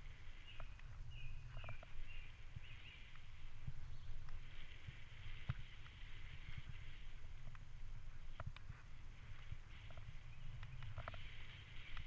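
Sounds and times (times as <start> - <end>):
bird chirping: 0.3 - 4.3
bicycle tyres rumbling on tarmac: 2.5 - 12.0.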